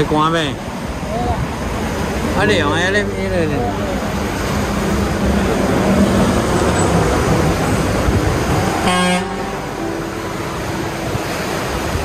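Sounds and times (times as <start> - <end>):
road noise: 0.0 - 12.0
vehicle horn toot: 8.8 - 9.6.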